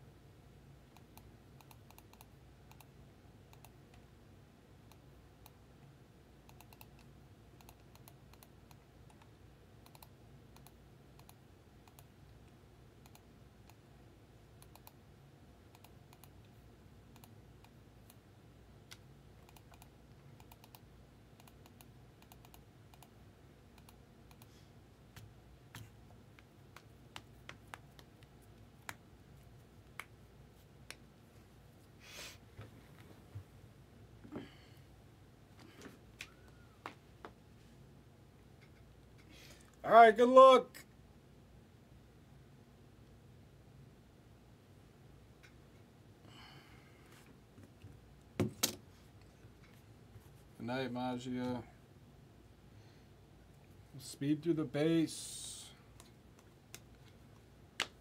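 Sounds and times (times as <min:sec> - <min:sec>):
low steady hum: 0:00.0 - 0:58.0
keyboard typing and clicking: 0:00.9 - 0:02.9, 0:06.4 - 0:12.1, 0:14.6 - 0:15.0, 0:15.7 - 0:16.5, 0:17.1 - 0:18.2, 0:18.9 - 0:24.5.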